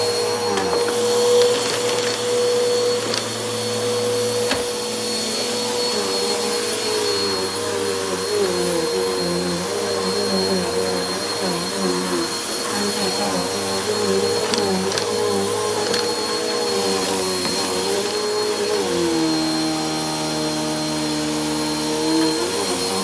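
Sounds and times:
vacuum cleaner running: 0.0 - 23.0.

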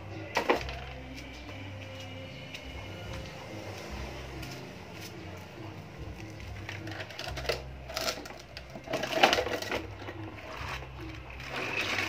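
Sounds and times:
toy truck rattling on paving: 6.8 - 12.0.

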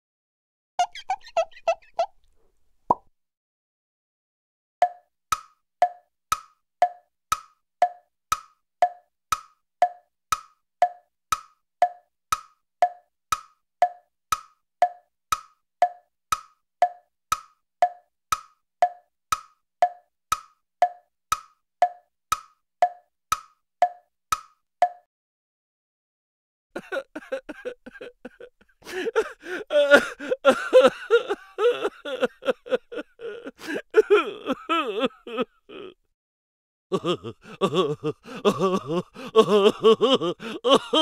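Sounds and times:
wood-block tick-tock: 4.8 - 25.1.

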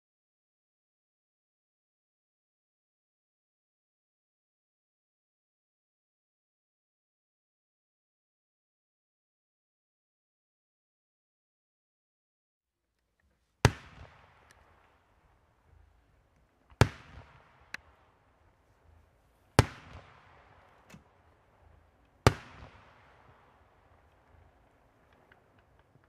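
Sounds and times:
small firework crackles: 13.0 - 26.0
firework shells bursting: 13.5 - 26.0.

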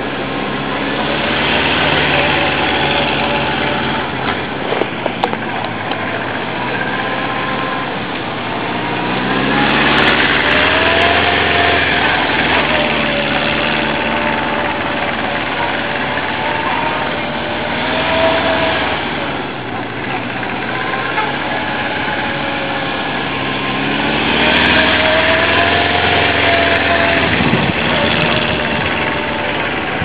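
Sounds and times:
motorcycle engine running: 0.0 - 30.0.

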